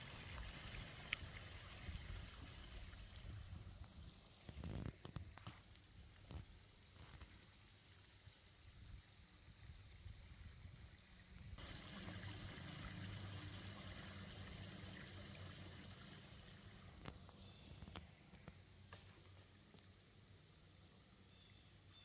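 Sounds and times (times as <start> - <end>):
stream trickling: 0.0 - 22.0.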